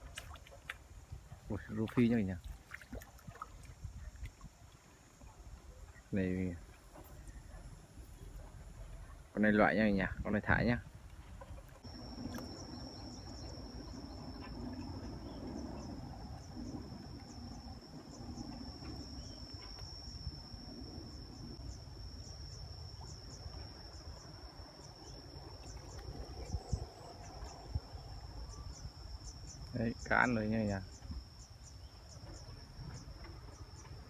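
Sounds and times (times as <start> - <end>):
insect high-pitched trill: 11.8 - 34.0.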